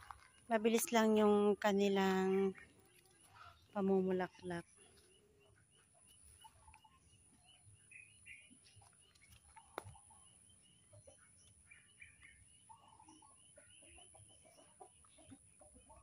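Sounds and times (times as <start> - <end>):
faint small bird chirps: 4.7 - 16.0.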